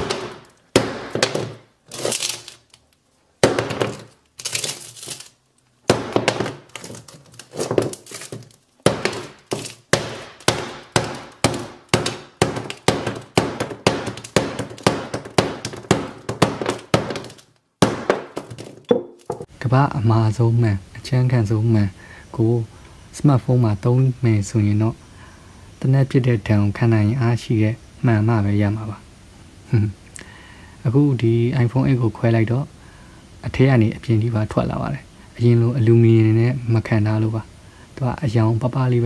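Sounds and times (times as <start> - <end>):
hammer striking phone: 0.0 - 1.6, 3.4 - 4.0, 5.9 - 6.7, 8.9 - 19.5
glass screen crunching: 0.0 - 19.5.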